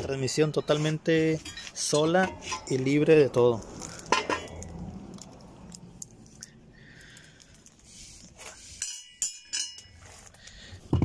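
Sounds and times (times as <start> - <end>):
metal bolts clinking: 0.3 - 3.1, 4.1 - 4.7, 8.8 - 10.0.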